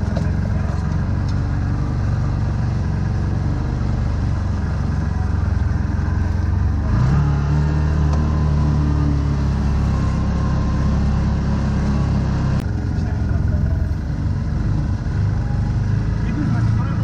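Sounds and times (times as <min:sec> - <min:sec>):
engine revving: 0:00.0 - 0:17.0.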